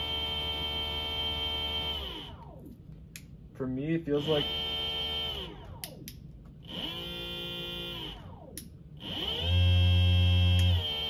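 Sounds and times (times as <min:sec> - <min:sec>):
electric motor whining: 0:00.0 - 0:02.6, 0:04.1 - 0:05.8, 0:06.6 - 0:11.0.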